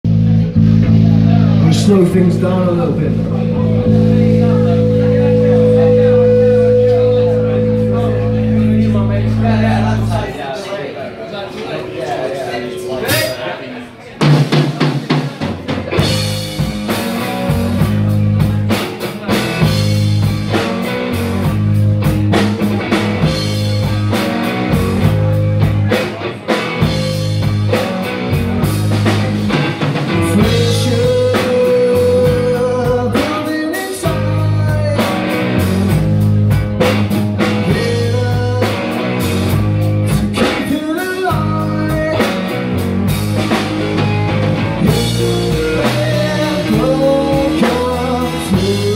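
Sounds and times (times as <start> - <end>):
bass guitar: 0.0 - 10.8, 14.2 - 48.9
drum kit: 0.1 - 10.4, 14.1 - 48.9
electric guitar: 0.1 - 14.6, 15.5 - 48.9
man singing: 1.6 - 10.4, 30.1 - 36.2, 37.6 - 39.3, 40.1 - 42.8, 44.8 - 48.9.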